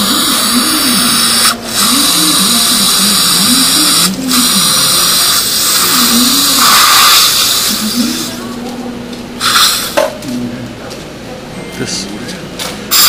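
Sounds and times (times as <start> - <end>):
dental drill whirring: 0.0 - 8.4, 9.4 - 10.1.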